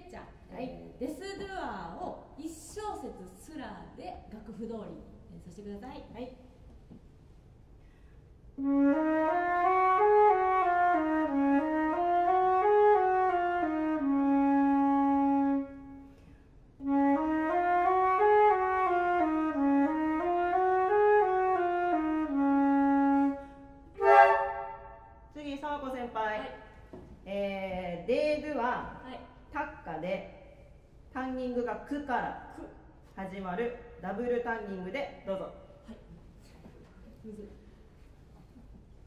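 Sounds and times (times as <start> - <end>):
flute playing scales: 8.6 - 16.1, 16.8 - 25.1.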